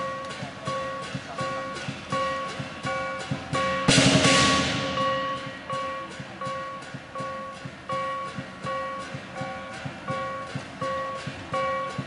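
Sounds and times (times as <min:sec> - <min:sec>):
drum strikes with ringing notes: 0:00.0 - 0:12.0
percussion band playing: 0:00.0 - 0:12.0
loud ringing crash: 0:03.6 - 0:06.8.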